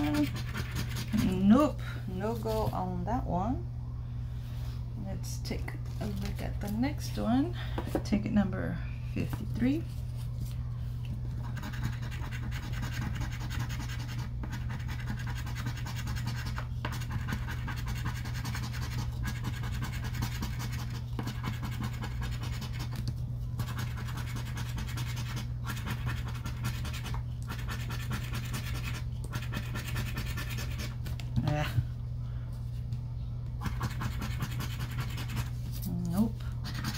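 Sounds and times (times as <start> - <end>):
scratching lottery ticket: 0.0 - 1.6, 11.4 - 31.0, 33.6 - 36.9.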